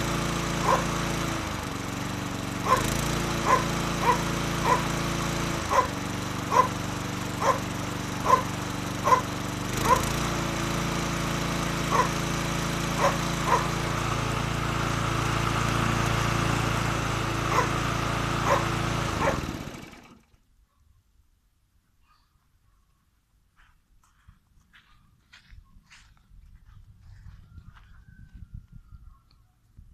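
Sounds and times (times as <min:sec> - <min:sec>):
lawn mower engine running: 0:00.0 - 0:20.5
dog barking: 0:00.6 - 0:00.9, 0:02.6 - 0:04.9, 0:05.7 - 0:05.9, 0:06.5 - 0:06.8, 0:07.4 - 0:07.6, 0:08.2 - 0:09.3, 0:09.9 - 0:10.1, 0:11.9 - 0:12.2, 0:13.0 - 0:13.7, 0:17.5 - 0:17.7, 0:18.4 - 0:19.4.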